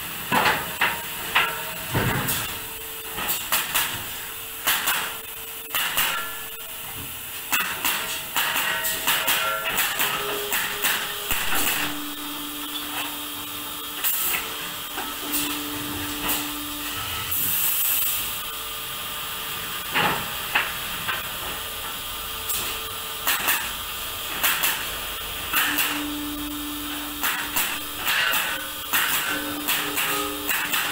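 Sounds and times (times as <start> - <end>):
knocks of wood and steel: 0.3 - 2.6, 3.2 - 6.4, 7.5 - 12.1, 27.2 - 30.9
machine hum: 8.6 - 19.8, 20.8 - 30.9
hydraulic hiss: 16.2 - 18.5.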